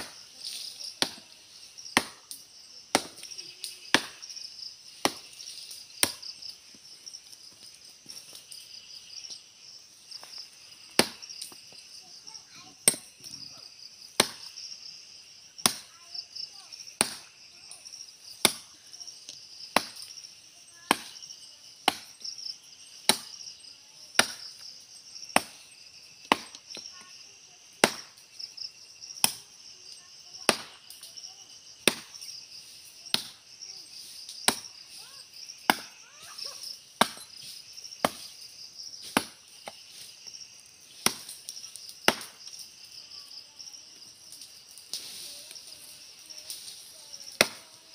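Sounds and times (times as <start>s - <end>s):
insects chirring: 0.0s - 47.9s
machete chopping tree trunk: 1.0s - 1.2s, 1.9s - 3.3s, 3.9s - 4.3s, 5.0s - 5.3s, 6.0s - 6.3s, 11.0s - 11.2s, 12.8s - 13.1s, 14.2s - 14.5s, 15.6s - 15.9s, 17.0s - 17.3s, 18.4s - 18.7s, 19.7s - 20.1s, 20.9s - 21.2s, 21.8s - 22.1s, 23.1s - 23.4s, 24.2s - 24.5s, 25.3s - 25.6s, 26.2s - 26.6s, 27.8s - 28.2s, 29.2s - 29.4s, 30.5s - 30.8s, 31.8s - 32.2s, 33.1s - 33.4s, 34.4s - 34.7s, 35.7s - 35.9s, 37.0s - 37.4s, 38.0s - 38.3s, 39.0s - 39.8s, 40.9s - 41.3s, 42.1s - 42.4s, 47.3s - 47.7s.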